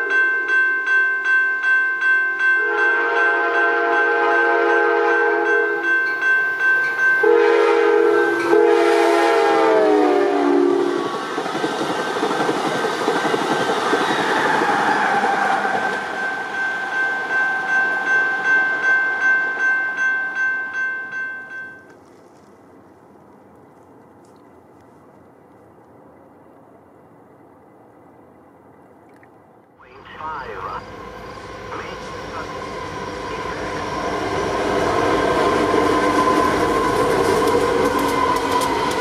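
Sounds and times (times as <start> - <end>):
train air horn blasts: 2.6 - 5.9, 7.2 - 11.1
train wheels clacking over rail joints: 11.0 - 16.7, 36.4 - 39.0.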